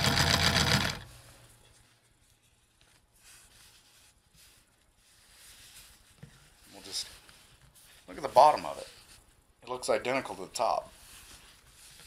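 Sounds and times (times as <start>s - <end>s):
sewing machine stitching: 0.0s - 1.1s
fabric rustling: 1.1s - 9.6s, 10.3s - 12.0s.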